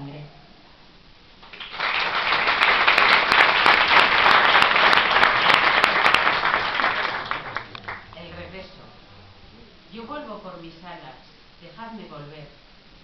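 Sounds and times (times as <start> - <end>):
audience applauding: 1.4 - 8.5.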